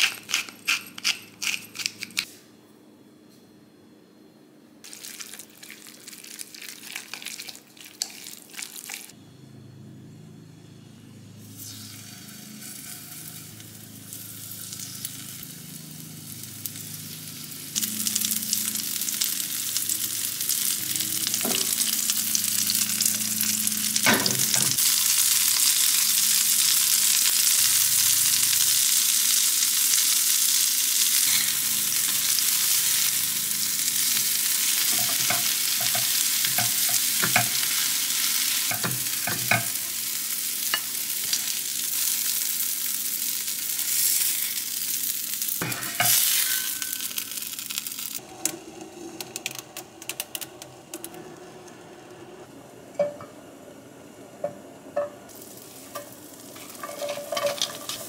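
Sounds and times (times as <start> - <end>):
batter sizzling in hot oil: 4.8 - 9.2, 11.6 - 48.2, 55.3 - 58.0
utensils knocking against pan: 34.9 - 37.7, 38.7 - 39.8, 56.0 - 58.0.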